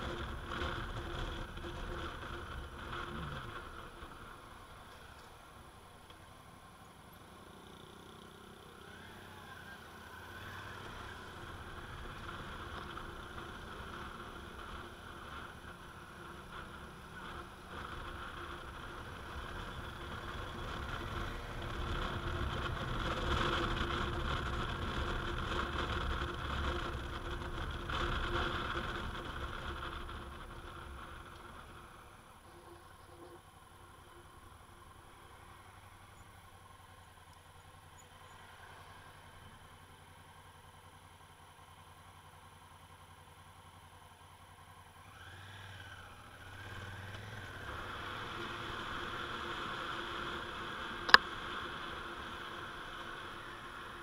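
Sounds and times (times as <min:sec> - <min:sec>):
motorcycle engine riding: 0:00.0 - 0:54.0.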